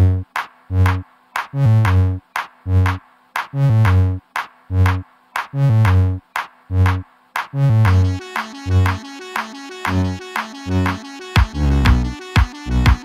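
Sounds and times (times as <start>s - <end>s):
electronic music with beat: 0.0s - 13.0s.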